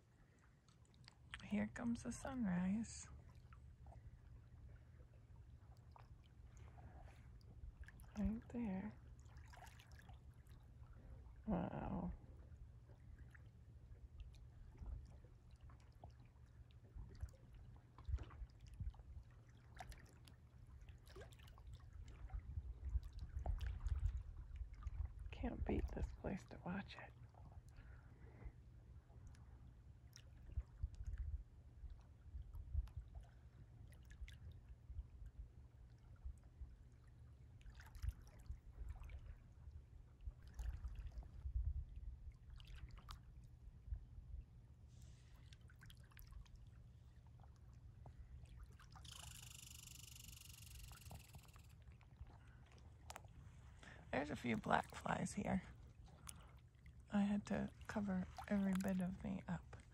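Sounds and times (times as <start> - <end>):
water lapping against rocks: 0.0 - 35.2, 35.8 - 43.6, 44.9 - 59.9
low steady rumble: 0.0 - 59.9
wind rumble on microphone: 16.8 - 19.4, 21.8 - 29.1, 30.3 - 36.8, 38.0 - 45.2.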